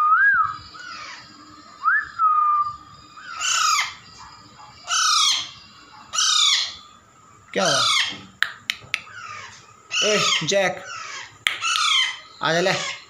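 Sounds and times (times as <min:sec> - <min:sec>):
parakeet whistled calls: 0:00.0 - 0:07.0, 0:07.6 - 0:13.0
parakeet harsh squawks: 0:00.8 - 0:01.3, 0:03.2 - 0:04.1, 0:04.8 - 0:07.0, 0:07.6 - 0:08.4, 0:09.0 - 0:13.0.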